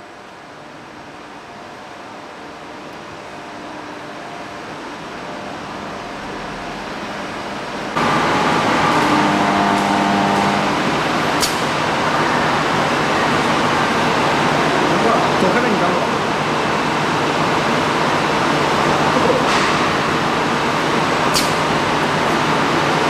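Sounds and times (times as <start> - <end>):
machinery running: 1.6 - 23.0
humming tones: 7.7 - 11.4
sharp click: 21.3 - 21.6.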